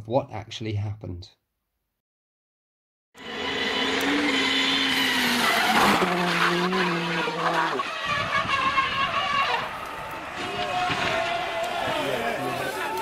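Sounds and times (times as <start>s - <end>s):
rally car engine braking: 3.2s - 13.0s
tyres skidding: 3.2s - 13.0s.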